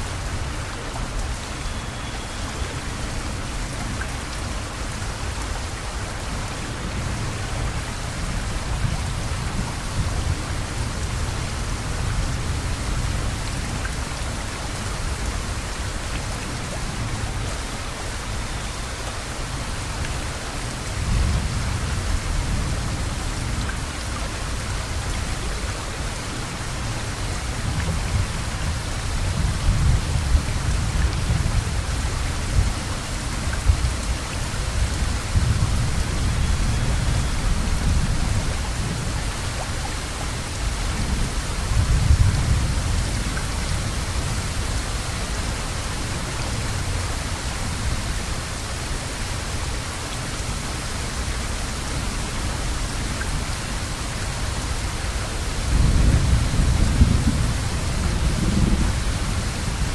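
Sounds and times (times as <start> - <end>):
heavy rain hissing: 0.0 - 59.9
low thunder rumbles: 55.6 - 59.9.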